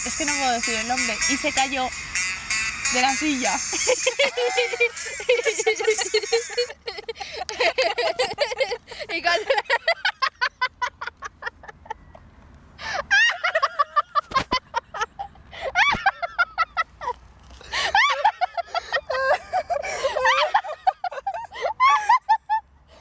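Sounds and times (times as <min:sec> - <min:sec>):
woman laughing hard: 0:03.7 - 0:12.2, 0:12.8 - 0:22.6.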